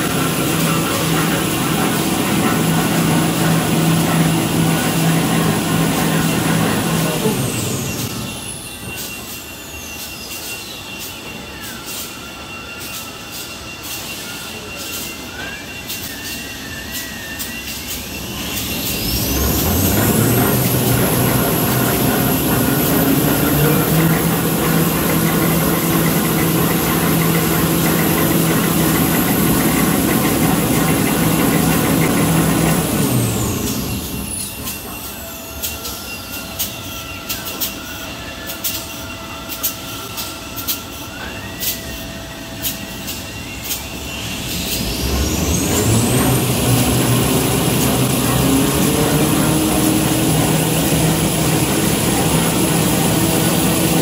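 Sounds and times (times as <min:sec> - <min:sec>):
machine low hum: 0:00.0 - 0:08.6, 0:18.2 - 0:36.4, 0:43.9 - 0:54.0
machine drives whining: 0:00.0 - 0:54.0.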